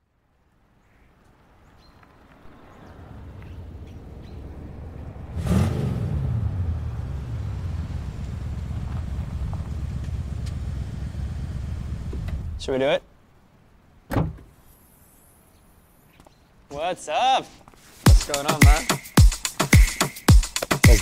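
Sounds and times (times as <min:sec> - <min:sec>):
car engine rumble: 0:01.3 - 0:12.8
vehicle whooshing by: 0:02.0 - 0:12.6.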